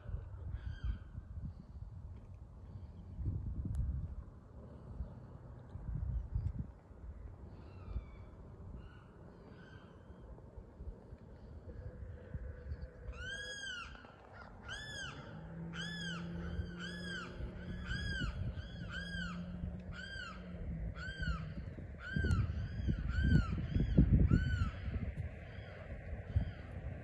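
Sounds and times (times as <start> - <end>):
low rumbling noise: 0.0 - 27.0
bird calling: 11.4 - 26.9.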